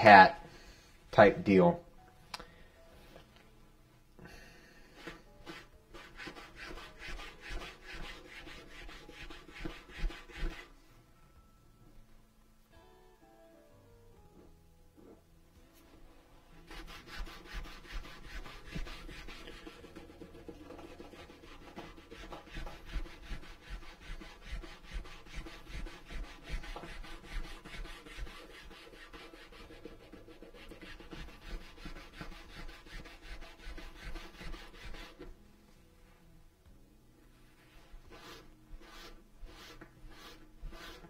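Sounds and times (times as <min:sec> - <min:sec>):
sanding stick rasping on leather: 0:05.0 - 0:10.7, 0:16.6 - 0:35.3, 0:38.1 - 0:41.0.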